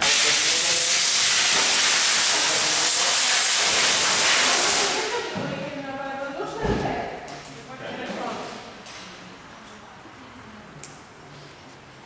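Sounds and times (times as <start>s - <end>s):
compressed air hissing: 0.0s - 5.2s.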